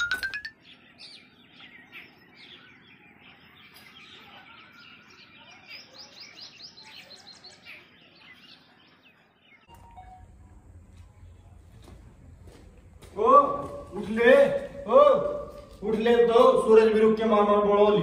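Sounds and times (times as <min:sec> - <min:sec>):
small birds chirping: 0:00.0 - 0:18.0
steady low hum: 0:09.7 - 0:15.9.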